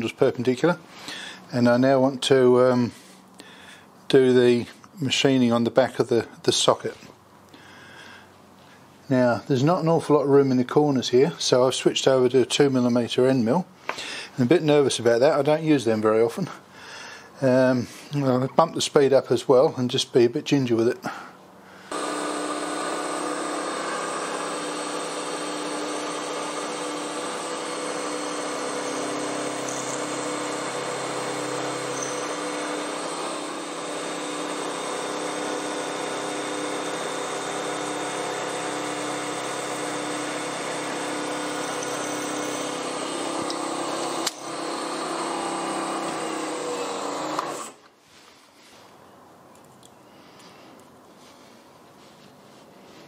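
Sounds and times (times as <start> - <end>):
milling machine whine cutting steel: 21.9 - 47.8.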